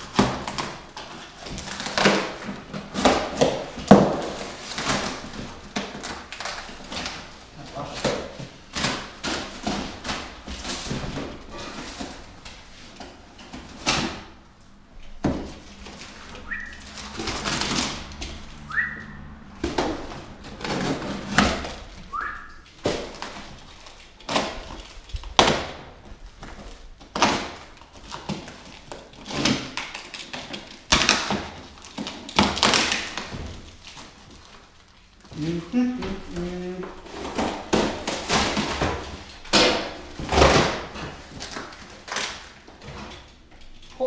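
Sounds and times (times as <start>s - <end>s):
packaging ripping and crinkling: 0.0s - 14.4s, 19.4s - 44.0s
short rising squeaks: 18.5s - 19.5s.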